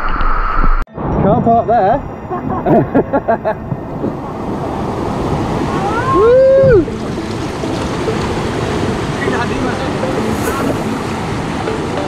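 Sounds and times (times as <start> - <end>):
river rapids rushing: 3.8 - 12.0.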